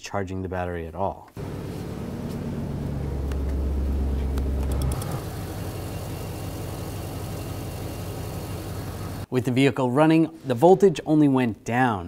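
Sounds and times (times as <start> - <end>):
strong low hum: 1.4 - 5.9
car engine idling: 1.4 - 9.3.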